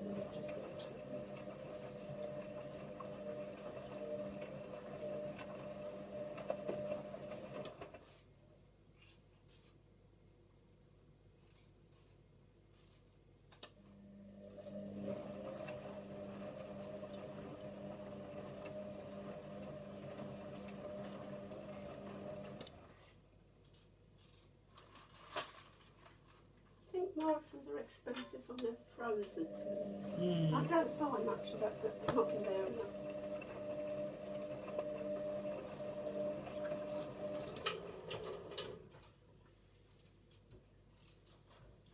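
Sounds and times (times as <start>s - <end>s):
washing machine drum motor humming: 0.0s - 7.9s, 14.2s - 22.9s, 28.7s - 39.0s
drum tumbling laundry: 29.0s - 39.0s.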